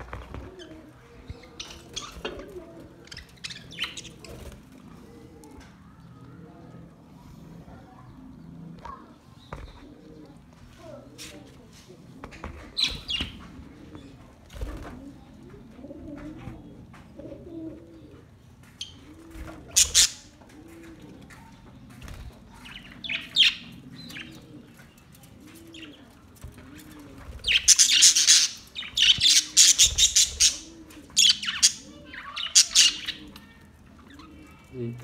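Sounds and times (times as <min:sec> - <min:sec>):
wings flapping: 0:14.4 - 0:15.2, 0:26.2 - 0:31.7
budgerigars chirping: 0:27.4 - 0:33.2.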